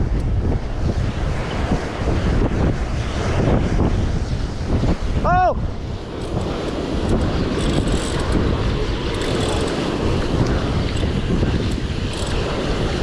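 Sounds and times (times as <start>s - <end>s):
wind buffeting microphone: 0.0s - 13.0s
heavy surf on rocky shore: 5.1s - 13.0s.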